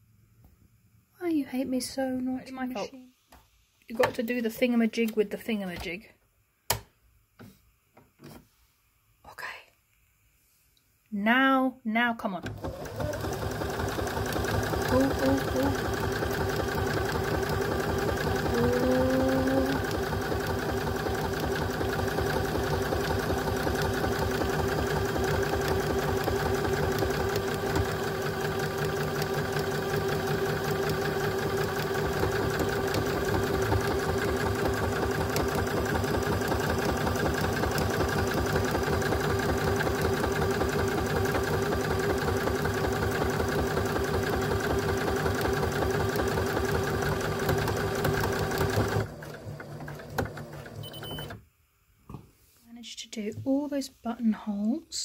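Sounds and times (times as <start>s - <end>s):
sewing machine motor whine: 12.4s - 51.4s.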